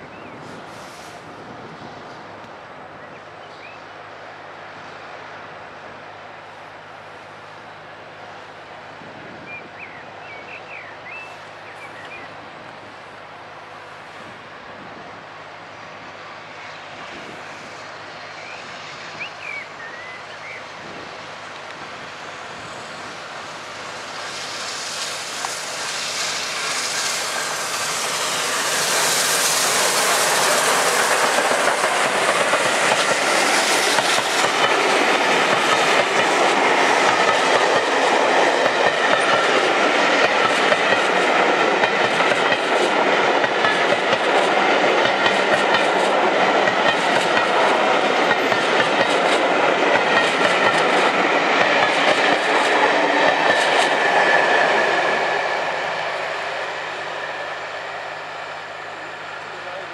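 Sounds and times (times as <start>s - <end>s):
steam locomotive rushing past: 0.0s - 59.9s
train wheels clickety-clack: 24.0s - 56.4s.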